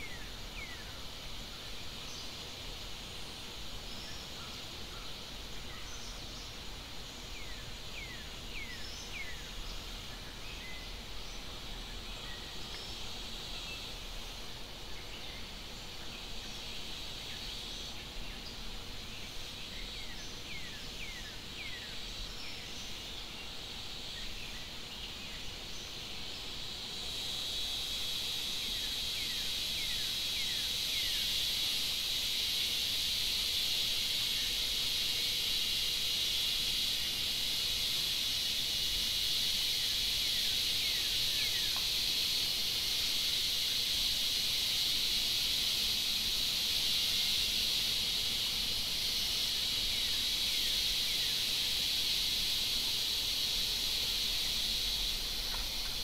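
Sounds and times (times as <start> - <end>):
insect chorus hiss: 0.0 - 56.0.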